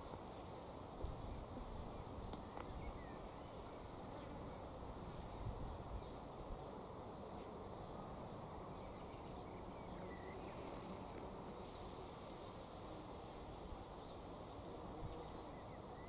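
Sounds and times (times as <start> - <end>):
steady low hiss: 0.0 - 16.0
faint insect ticks: 2.3 - 3.3, 9.8 - 12.1.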